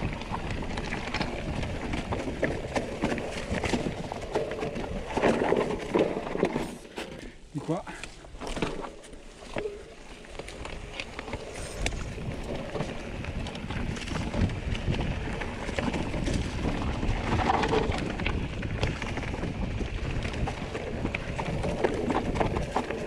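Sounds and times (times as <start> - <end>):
wind on microphone: 0.0 - 5.9, 11.3 - 23.0
bike rattling and knocking: 0.0 - 23.0
bike tyre noise on trail: 0.0 - 23.0.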